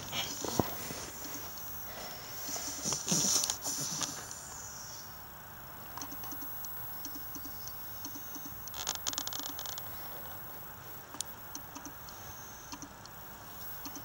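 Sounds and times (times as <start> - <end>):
rustling of fur and bedding: 0.0 - 4.7
faint light ticks: 11.1 - 14.0.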